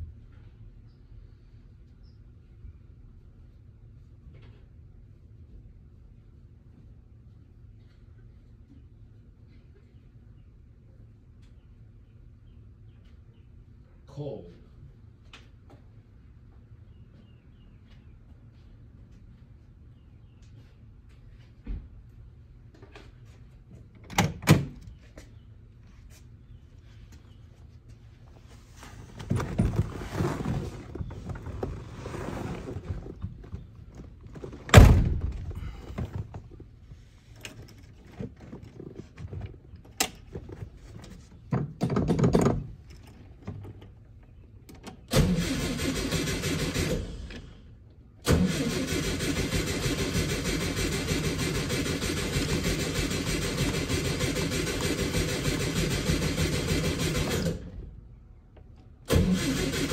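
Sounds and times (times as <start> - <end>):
car engine cranking on starter: 45.1 - 47.5, 48.2 - 57.8, 59.1 - 59.9.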